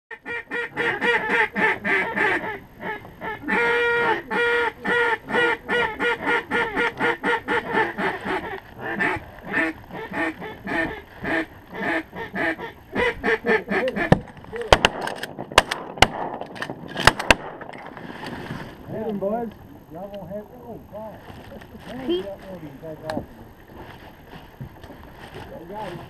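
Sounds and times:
duck call quacks: 0.1 - 14.2.

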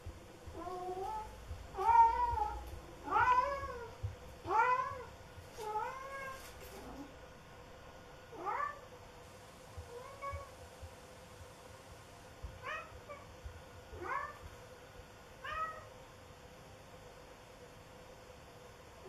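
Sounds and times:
cat meowing: 0.5 - 7.1, 8.4 - 8.8, 12.6 - 13.3, 14.0 - 14.4, 15.4 - 15.9.

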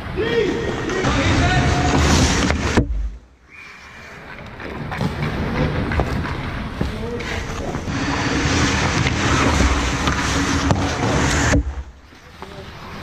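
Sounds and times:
skates scraping ice: 0.0 - 2.8, 3.5 - 13.0
stick hitting puck: 8.0 - 11.8.

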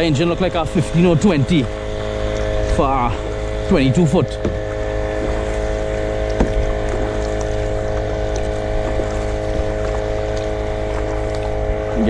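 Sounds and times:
outboard motor droning: 0.0 - 12.0
paddle splashes: 0.0 - 12.0.

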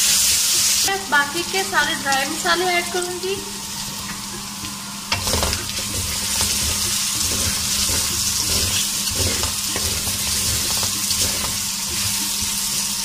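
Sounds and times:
food sizzling in hot oil: 0.0 - 13.0
wooden spatula scraping pan: 5.2 - 13.0.

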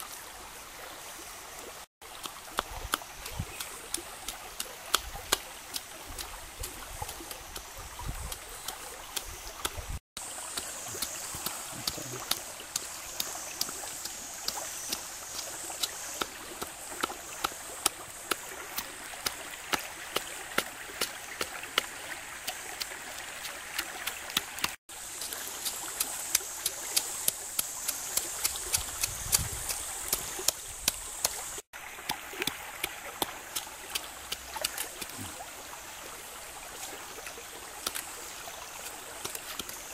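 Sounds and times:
flowing stream: 0.0 - 39.9.

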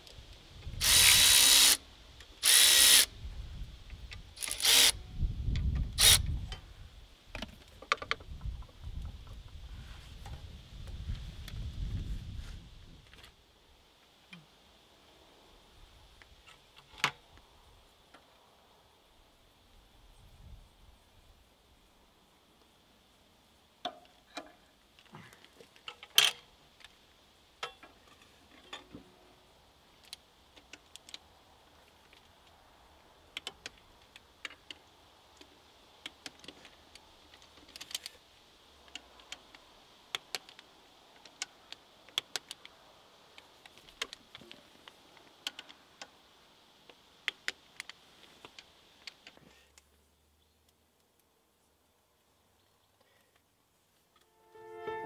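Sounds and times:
metal clicks of hand tools: 25.8 - 26.5.

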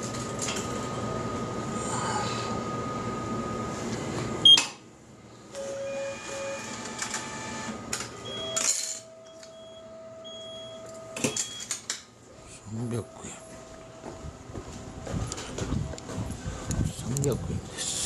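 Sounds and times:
long electronic tone: 0.8 - 3.8, 5.5 - 11.6, 12.5 - 14.3
short electronic beeps: 8.3 - 11.7
machine rumbling: 12.4 - 17.7.

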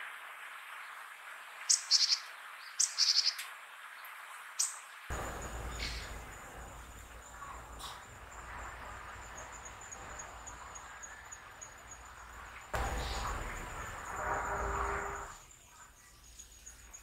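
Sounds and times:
outdoor background noise: 0.0 - 17.0
high-pitched insect trill: 5.1 - 17.0.

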